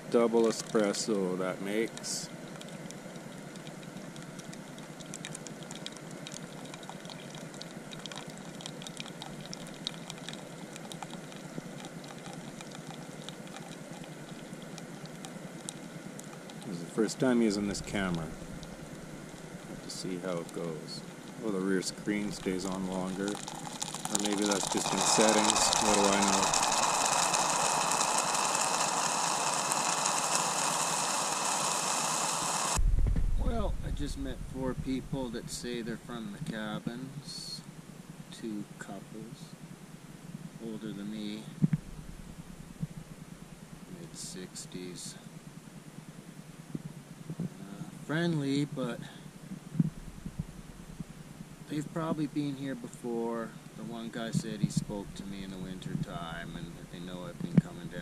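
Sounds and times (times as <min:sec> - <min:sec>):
espresso maker hissing and spitting: 0:00.0 - 0:32.8, 0:53.3 - 0:58.0.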